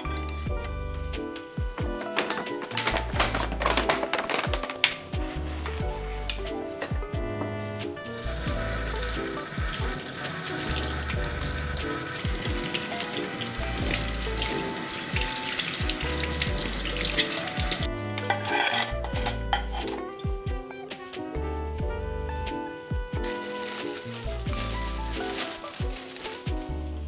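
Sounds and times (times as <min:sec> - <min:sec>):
wooden utensils rinsed: 0:01.4 - 0:06.9, 0:07.9 - 0:20.0, 0:23.2 - 0:27.0
plate clinking in drying rack: 0:18.2 - 0:19.9.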